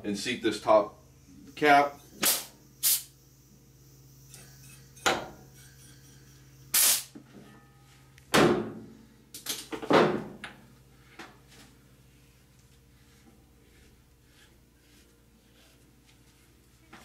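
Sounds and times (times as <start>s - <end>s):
compressed air blasts: 2.2s - 3.1s, 6.7s - 7.1s.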